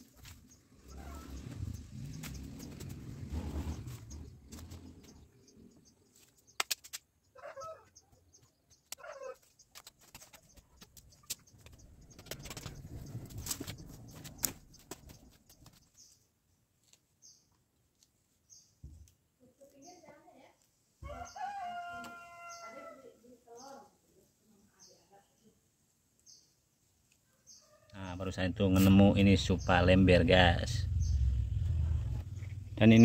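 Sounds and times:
dry stems snapping: 6.6s - 7.0s.

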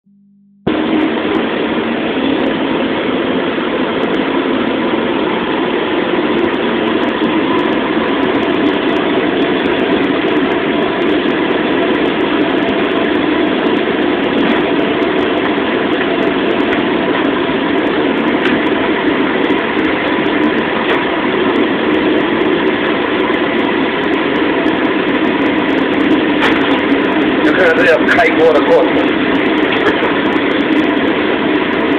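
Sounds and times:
gas burner roaring: 0.7s - 31.9s.

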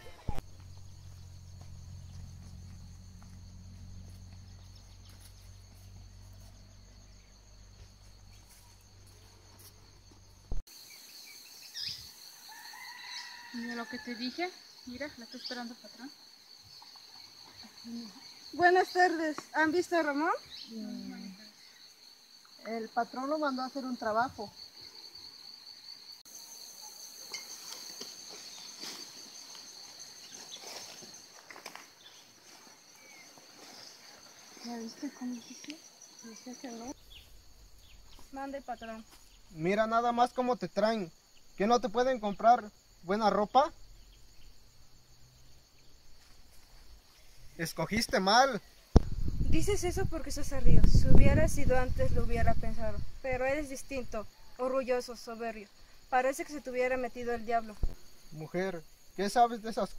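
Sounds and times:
rustles: 0.0s - 10.8s, 26.6s - 40.5s, 43.8s - 54.4s
insects trilling: 0.0s - 59.9s.

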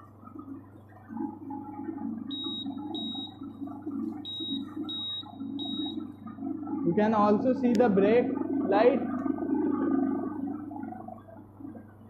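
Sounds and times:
low motor hum: 0.0s - 12.0s
short high beeps: 2.3s - 3.4s, 4.3s - 6.0s.

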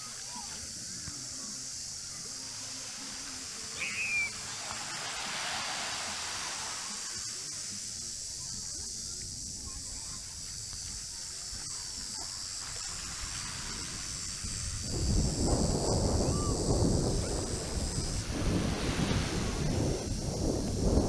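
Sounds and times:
high-pitched insect drone: 0.0s - 21.0s
small waves washing onto beach: 0.0s - 21.0s
short falling bird call: 3.8s - 4.4s.

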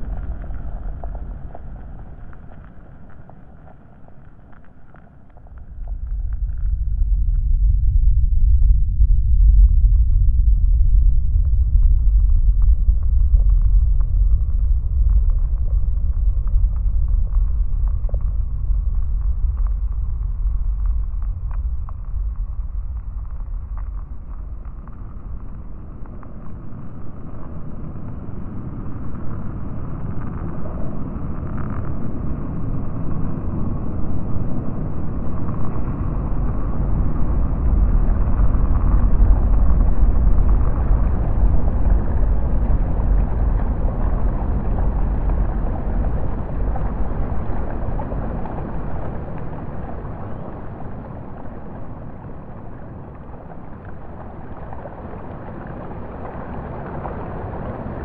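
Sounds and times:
low noisy rumble: 0.0s - 58.0s.

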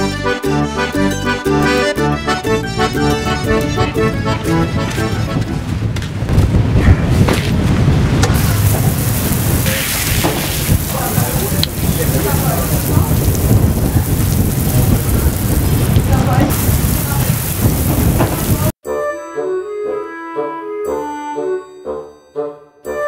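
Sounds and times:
heavy low rumble: 2.8s - 18.8s
shower water spraying and splashing: 8.4s - 18.8s.

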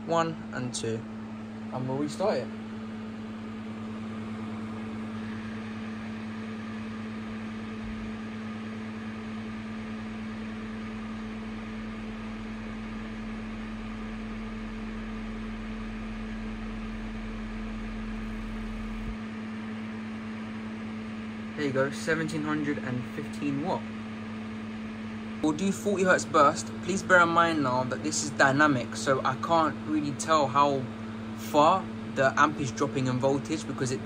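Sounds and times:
deep low hum: 0.0s - 25.5s
electrical hum and fan hiss: 0.0s - 34.0s.

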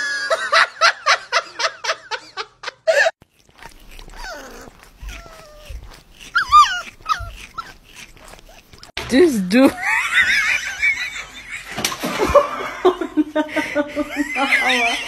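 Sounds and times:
woman laughing: 0.0s - 3.2s, 9.5s - 15.0s
puppy whimpering: 3.6s - 9.0s.

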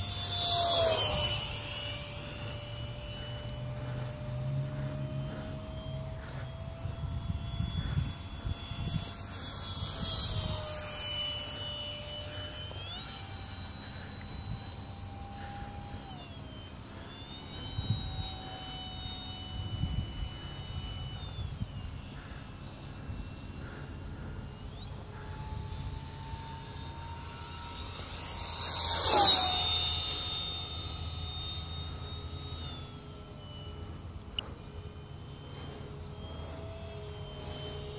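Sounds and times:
electric jet fan whine: 0.0s - 37.9s
wind buffeting microphone: 6.1s - 10.8s.

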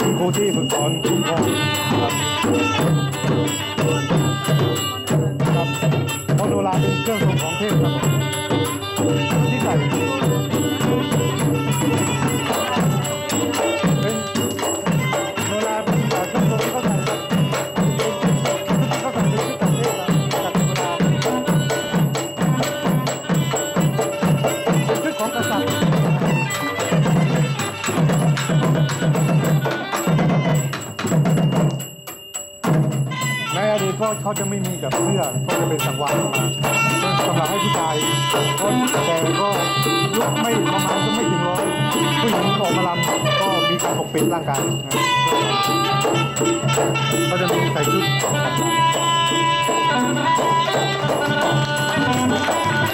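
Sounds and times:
fast drum strokes: 0.0s - 52.9s
reedy oboe melody: 36.8s - 52.9s.

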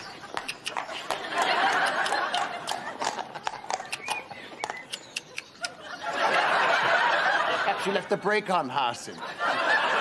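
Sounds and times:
studio audience laughter: 0.9s - 3.0s, 5.6s - 8.1s, 9.2s - 10.0s.

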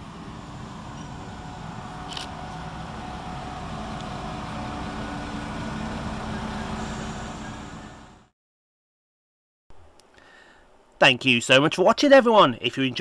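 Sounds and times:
diesel train engines humming: 0.0s - 8.3s
rumble of train wheels: 0.0s - 8.3s.

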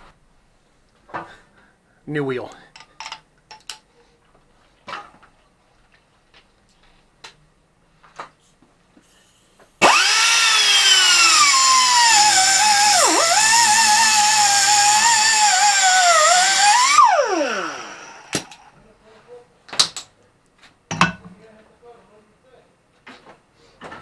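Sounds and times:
angle grinder cutting metal: 9.8s - 18.7s
grinder winding down: 9.8s - 18.7s.

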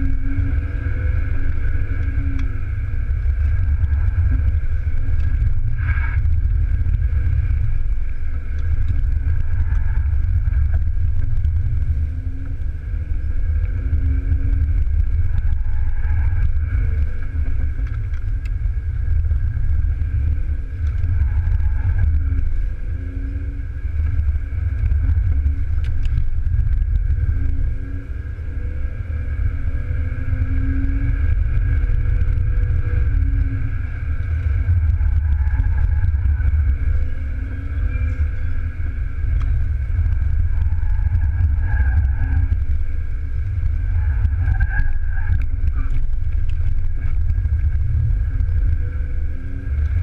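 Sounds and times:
road and tyre rumble: 0.0s - 50.0s.

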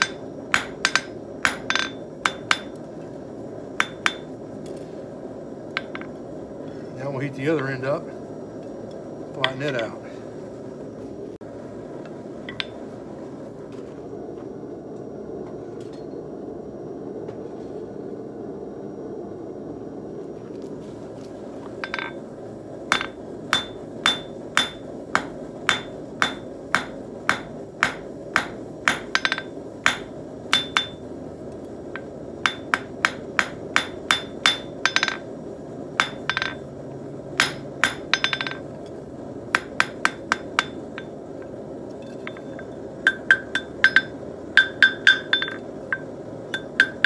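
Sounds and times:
hammer striking metal on anvil: 0.0s - 2.8s, 3.8s - 4.4s, 5.8s - 6.1s, 21.8s - 22.2s, 22.9s - 31.0s, 32.0s - 35.3s, 36.0s - 36.6s, 37.4s - 38.7s, 39.5s - 41.2s, 42.2s - 47.0s.

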